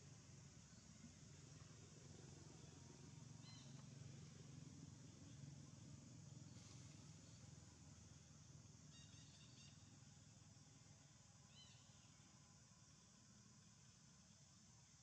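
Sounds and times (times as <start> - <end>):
faint outdoor hiss: 0.0 - 15.0
faint high chirps: 2.5 - 4.0, 8.9 - 10.0, 11.5 - 12.4.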